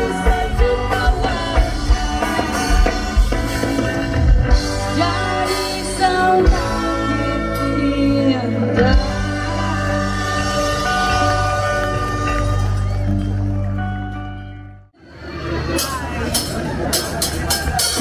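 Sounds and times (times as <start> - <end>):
person singing: 0.0 - 3.4, 4.7 - 13.0
ska band playing: 0.0 - 18.0.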